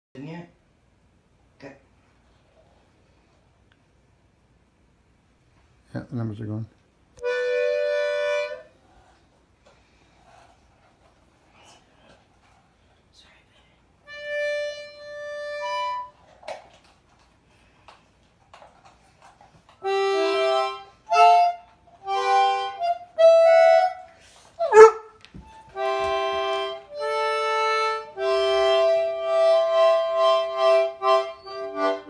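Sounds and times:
concertina playing: 7.2s - 8.8s, 14.1s - 16.2s, 19.8s - 32.0s.

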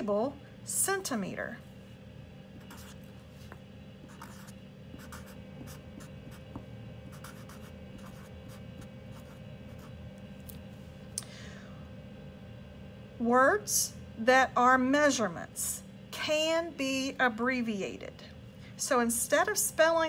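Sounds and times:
marker writing on paper: 2.6s - 3.1s, 4.1s - 6.5s, 7.1s - 9.9s.

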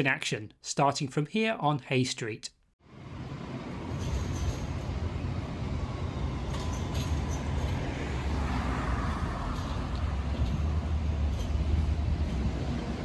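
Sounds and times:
traffic: 2.8s - 13.0s
tram running rumble: 2.9s - 13.0s.

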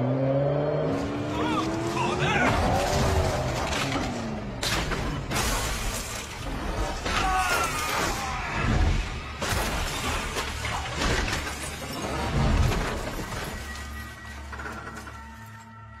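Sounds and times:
crashes with glass shattering: 4.6s - 15.2s.

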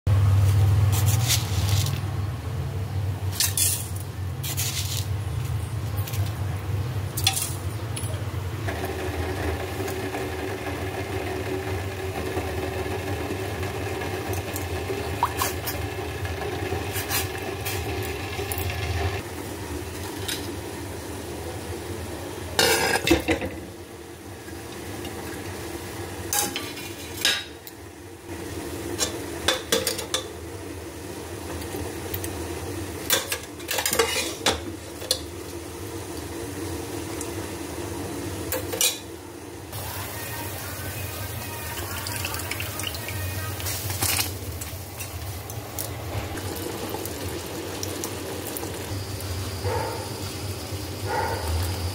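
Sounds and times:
spices frying in oil: 0.1s - 51.9s
spoon scraping metal pot: 33.7s - 34.5s.

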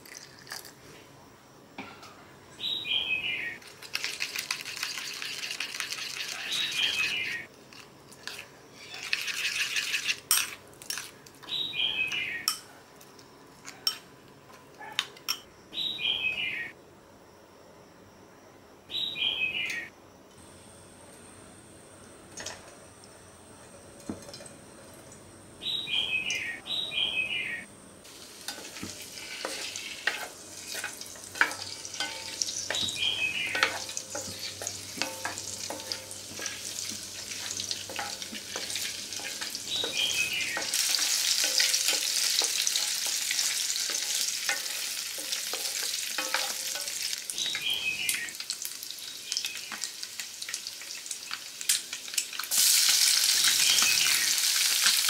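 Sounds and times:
eggs sizzling in hot oil: 3.6s - 11.1s, 28.0s - 55.0s
high falling chirps: 31.0s - 42.3s, 47.3s - 49.8s.

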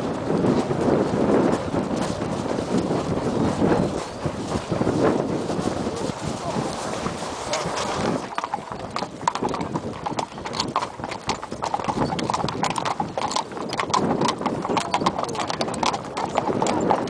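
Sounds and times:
hooves clip-clopping on tarmac: 0.0s - 17.0s.

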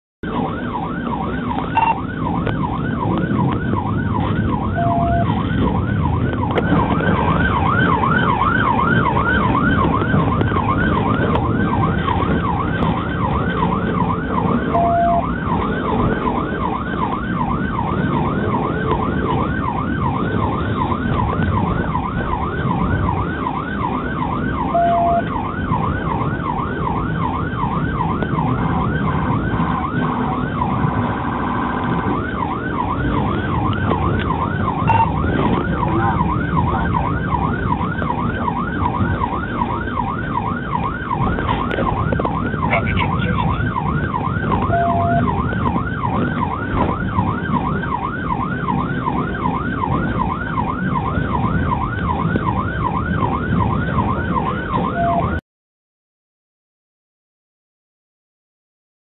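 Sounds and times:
engine and road rumble: 0.2s - 55.4s
police siren yelping: 0.2s - 55.4s
short steady beep: 1.8s - 2.0s, 4.8s - 5.3s, 14.8s - 15.2s, 34.9s - 35.1s.

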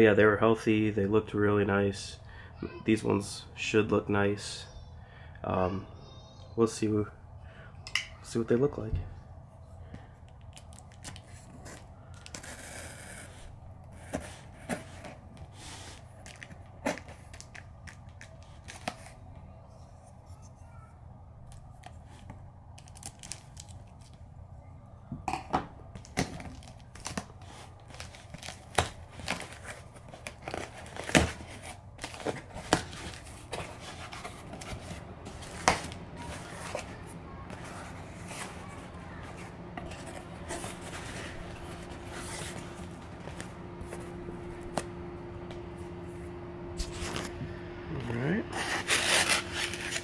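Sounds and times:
knife slicing packing tape: 48.6s - 50.0s.

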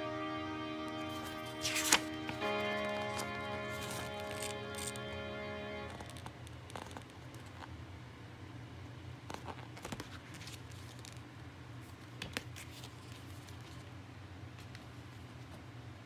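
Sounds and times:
paper rustling: 1.0s - 5.1s, 5.9s - 7.5s.

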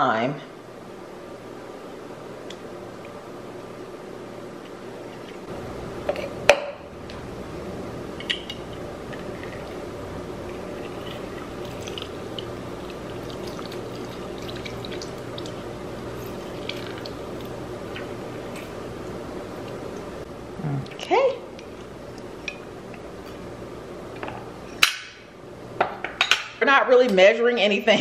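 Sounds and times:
juice dripping into metal shaker: 10.6s - 18.8s.

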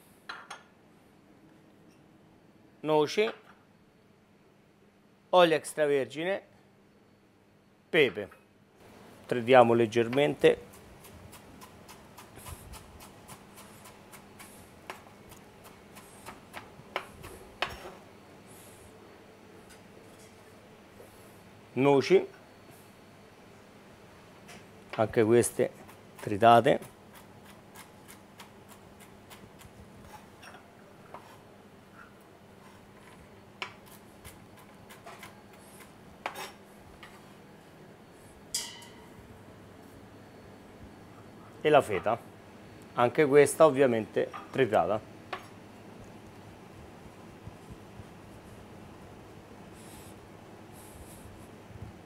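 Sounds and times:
ringing metal clank: 38.5s - 39.2s.

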